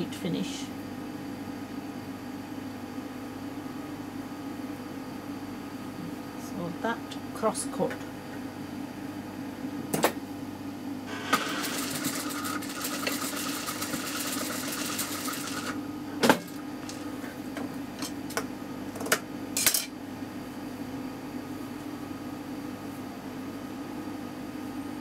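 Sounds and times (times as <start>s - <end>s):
sewing machine stitching: 11.3s - 15.8s.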